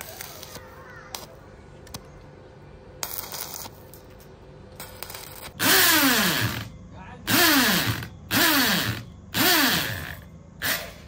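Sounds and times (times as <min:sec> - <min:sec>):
welding arc crackling: 0:00.0 - 0:01.4, 0:03.0 - 0:06.7.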